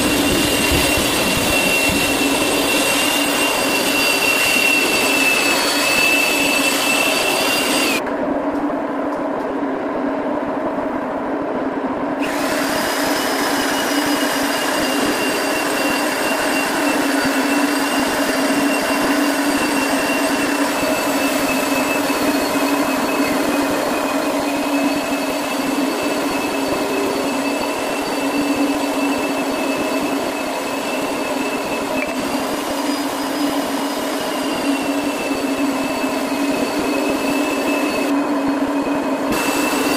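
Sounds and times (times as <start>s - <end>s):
electric polisher whine: 0.0s - 8.0s, 12.2s - 39.9s.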